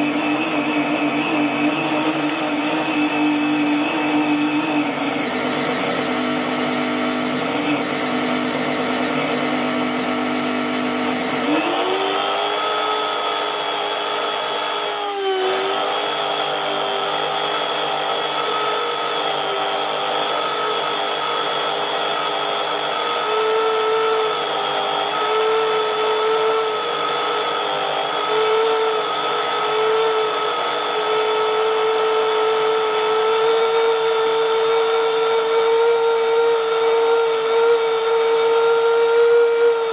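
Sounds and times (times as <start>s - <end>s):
electric motor high whine: 0.0s - 39.9s.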